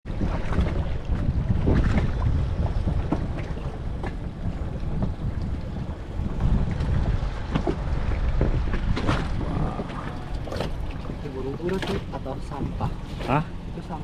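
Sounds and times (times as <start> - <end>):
wind buffeting microphone: 0.0 - 13.8.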